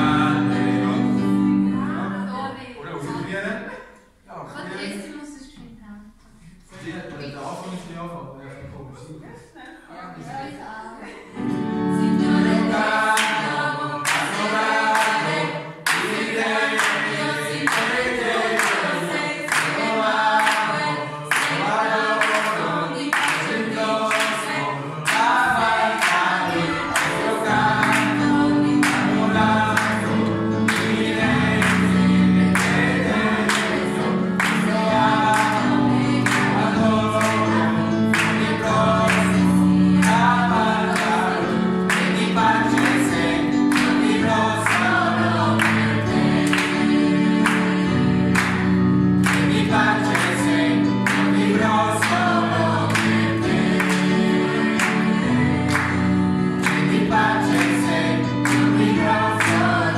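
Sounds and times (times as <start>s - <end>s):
mixed choir singing: 0.0s - 4.0s, 10.0s - 59.9s
hands clapping in time: 17.7s - 20.7s, 21.3s - 25.4s, 41.8s - 45.0s, 46.4s - 46.8s, 47.4s - 48.6s, 49.2s - 50.4s, 51.0s - 51.4s, 52.9s - 54.1s, 56.6s - 59.8s.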